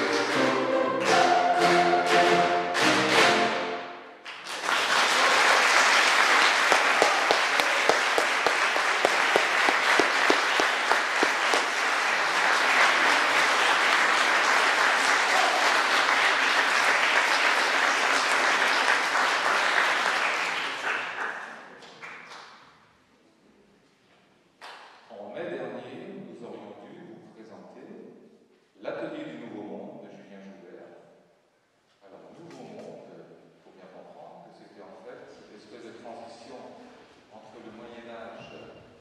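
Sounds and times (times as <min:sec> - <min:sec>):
audience clapping: 0:04.2 - 0:22.6.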